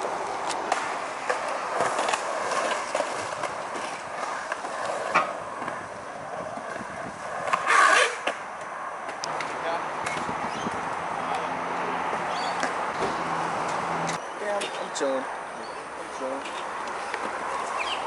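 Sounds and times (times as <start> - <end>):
skateboard scrape: 0.0 - 8.8
skateboard wheels rolling on concrete: 0.0 - 18.0.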